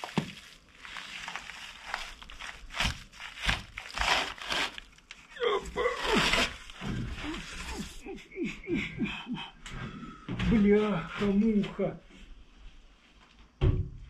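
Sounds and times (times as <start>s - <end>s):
wood and mortar crunching: 0.0s - 8.1s.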